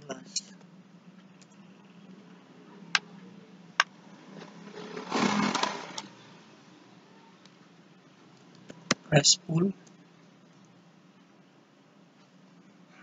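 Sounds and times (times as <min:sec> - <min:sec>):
low steady hum: 0:00.0 - 0:13.0
rough noisy rush: 0:04.1 - 0:06.2.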